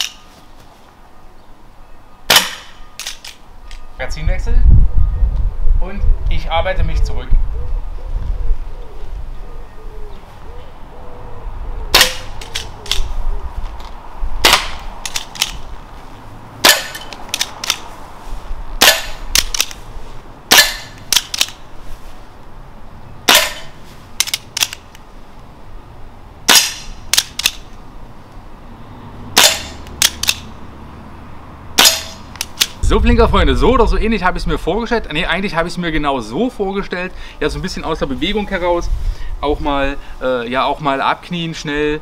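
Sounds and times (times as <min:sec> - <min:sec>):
air pistol shots: 0:02.3 - 0:03.4, 0:11.9 - 0:13.1, 0:14.4 - 0:15.6, 0:16.6 - 0:17.8, 0:18.8 - 0:19.8, 0:20.5 - 0:21.6, 0:23.3 - 0:24.8, 0:26.5 - 0:27.6, 0:29.4 - 0:30.4, 0:31.8 - 0:32.8.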